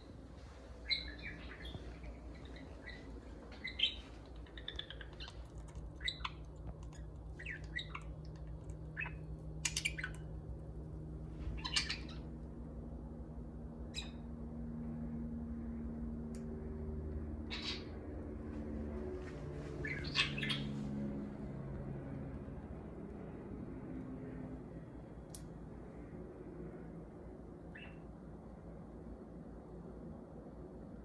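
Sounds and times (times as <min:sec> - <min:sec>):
budgerigars chirping: 0:00.8 - 0:06.4, 0:07.4 - 0:08.1, 0:09.0 - 0:10.2, 0:11.6 - 0:12.2, 0:17.5 - 0:17.9, 0:19.8 - 0:20.7.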